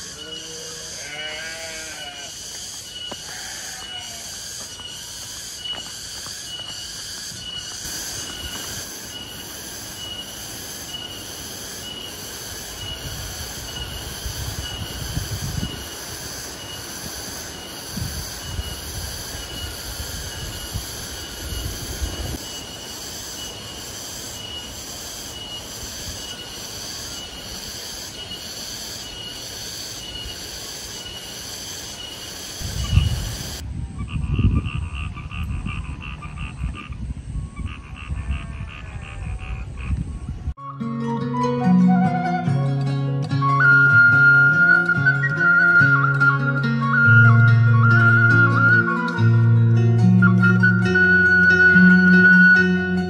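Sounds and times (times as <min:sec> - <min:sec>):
insects buzzing in pulses: 0:00.0 - 0:40.3
frogs croaking: 0:00.0 - 0:40.5.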